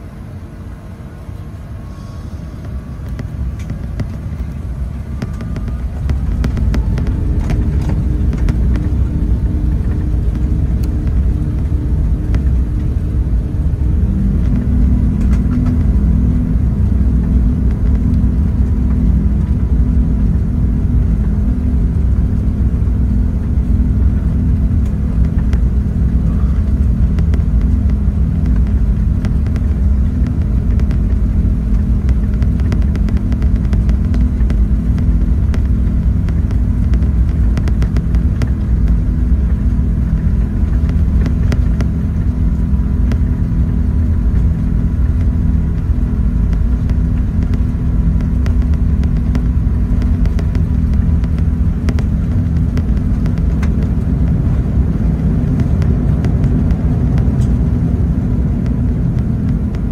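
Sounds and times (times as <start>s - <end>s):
airplane cabin engine rumble: 0.0s - 59.9s.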